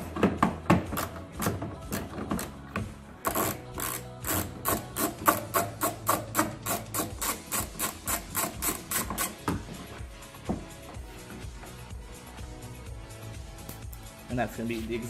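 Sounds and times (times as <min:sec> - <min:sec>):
hand ratchet clicking: 0:03.2 - 0:09.6.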